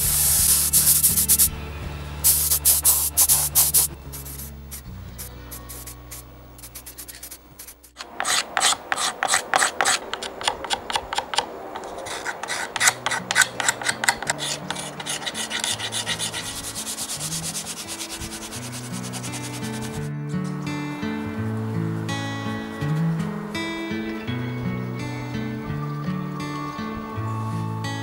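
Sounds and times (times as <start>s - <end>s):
hand sanding wood: 0.0s - 1.5s, 2.3s - 20.1s.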